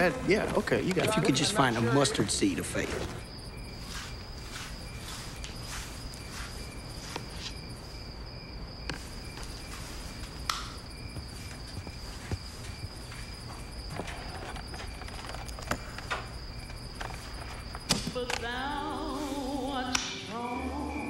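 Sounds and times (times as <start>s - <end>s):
crickets chirping: 0.0s - 21.0s
soft footsteps: 2.7s - 8.1s, 8.9s - 17.9s.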